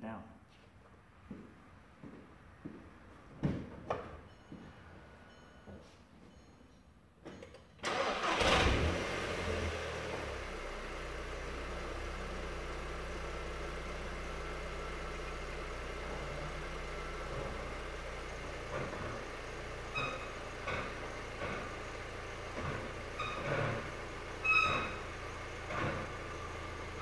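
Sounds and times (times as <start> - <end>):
car engine starting and idling: 7.8 - 27.0.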